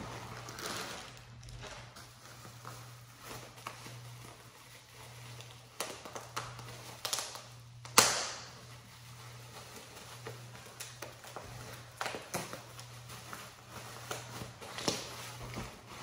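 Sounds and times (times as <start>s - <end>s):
plastic bag and bubble wrap crinkling: 0.0s - 16.0s
sharp plastic crack: 5.8s - 8.6s.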